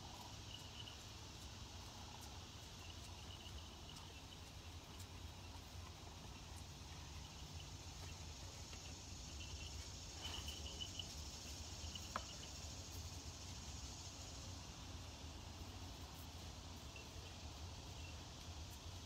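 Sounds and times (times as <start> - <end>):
insects buzzing: 0.0 - 19.0
insects chirping rapidly: 0.0 - 19.0.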